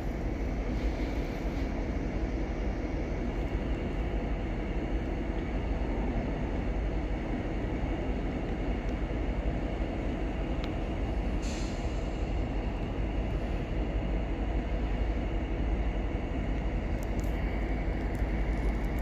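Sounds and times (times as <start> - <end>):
train wheels rumbling on rails: 0.0 - 19.0
brief hiss: 11.4 - 12.2.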